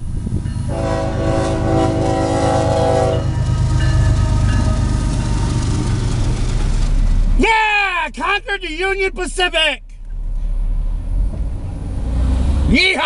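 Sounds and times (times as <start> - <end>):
train rumbling past: 0.0 - 12.8
locomotive air horn blast: 0.7 - 3.4.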